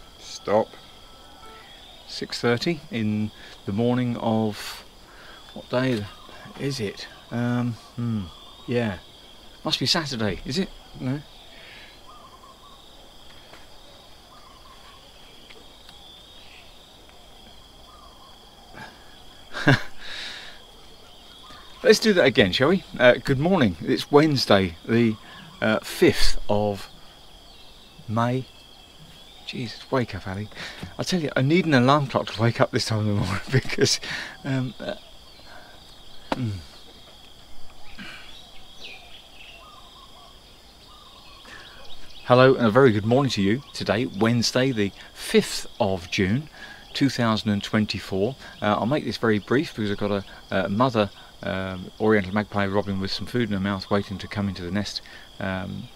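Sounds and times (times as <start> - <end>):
distant bird calls: 0.0 - 55.9
insects droning: 0.0 - 55.9
loud thump: 36.3 - 36.6.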